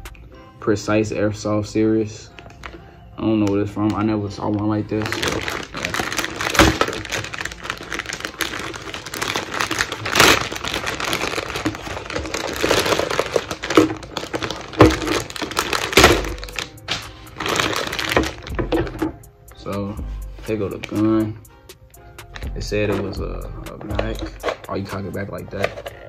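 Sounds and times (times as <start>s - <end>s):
plastic packaging crinkling: 3.4s - 19.1s.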